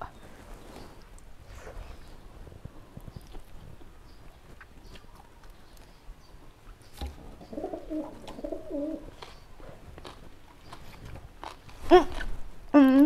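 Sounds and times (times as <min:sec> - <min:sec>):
clicks and smacks of eating: 0:03.0 - 0:06.1, 0:09.1 - 0:13.0
dove cooing: 0:07.4 - 0:09.1.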